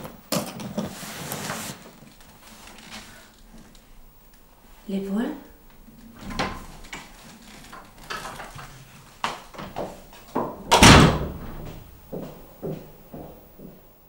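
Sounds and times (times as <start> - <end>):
door slamming shut: 10.4 - 12.0.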